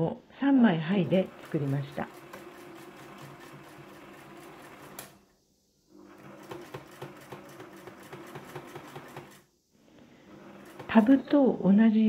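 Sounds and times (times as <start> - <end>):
sewing machine stitching: 1.0 - 5.3, 5.9 - 9.5, 10.3 - 11.4.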